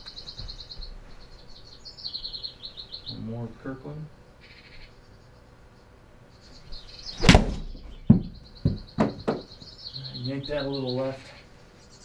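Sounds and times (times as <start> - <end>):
short sharp knocks: 7.2 - 9.5.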